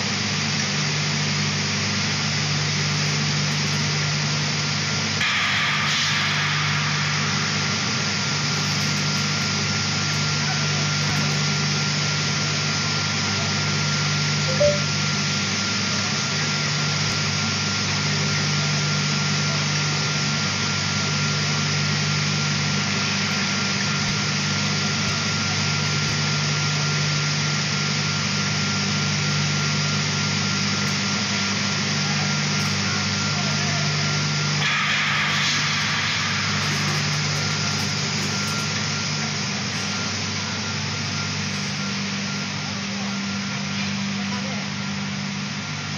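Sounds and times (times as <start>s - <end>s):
industrial machine drone: 0.0s - 45.9s
thin constant whine: 0.0s - 45.9s
brief sharp sound: 14.5s - 14.9s.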